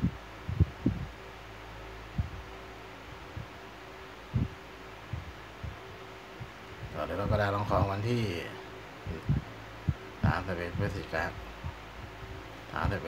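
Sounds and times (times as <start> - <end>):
soft low thumps: 0.0 - 1.2, 2.1 - 3.6, 4.3 - 8.0, 9.1 - 13.0
steady low hum: 0.0 - 13.0.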